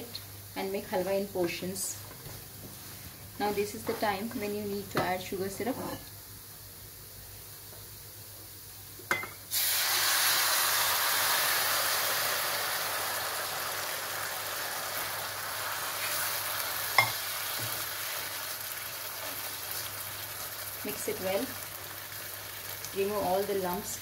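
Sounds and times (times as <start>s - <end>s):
syrup sizzling in hot pan: 9.1s - 24.0s.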